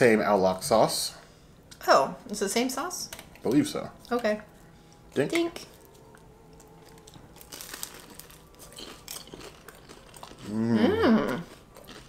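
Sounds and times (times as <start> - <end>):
crunching of fried food being chewed: 5.6 - 12.0.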